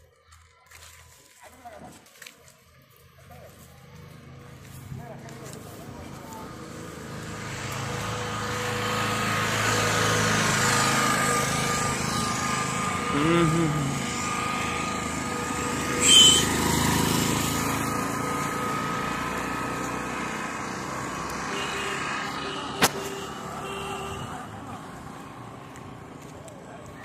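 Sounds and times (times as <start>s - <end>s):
small engine vehicle passing: 0.2s - 27.0s
sharp high sound: 15.8s - 16.6s.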